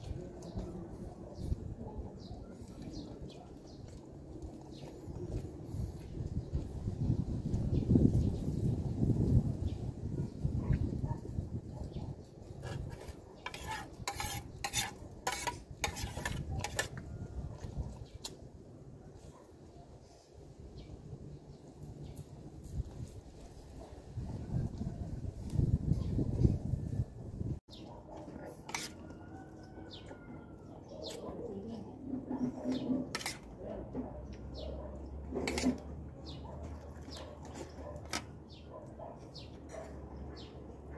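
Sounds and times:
metal spoon scraping a plate: 12.6s - 17.1s, 28.6s - 29.6s, 32.2s - 33.6s, 35.3s - 35.9s.

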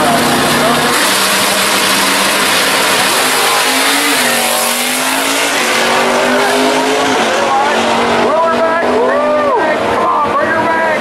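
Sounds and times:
drag cars accelerating: 0.0s - 11.0s.

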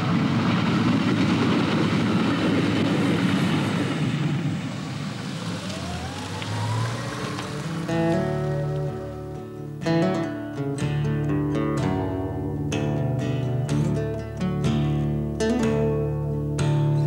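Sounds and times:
train passing: 0.0s - 10.0s
car engine speeding up: 0.7s - 10.3s.

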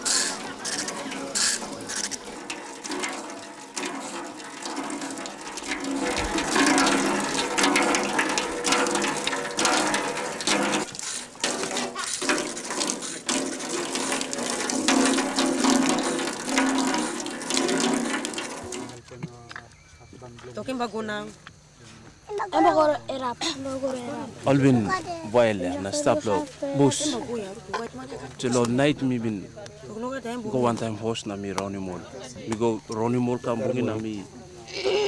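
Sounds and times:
water gushing from a pipe: 0.0s - 19.1s.

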